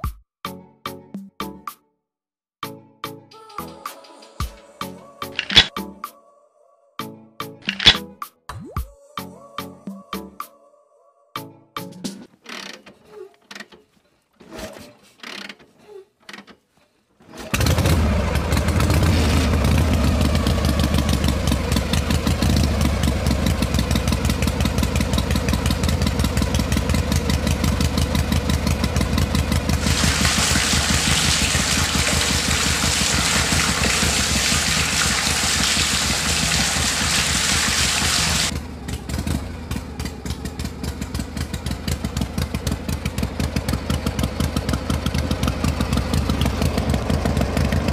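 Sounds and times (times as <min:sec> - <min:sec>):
small diesel engine chugging: 0:17.5 - 0:33.6, 0:38.2 - 0:47.9.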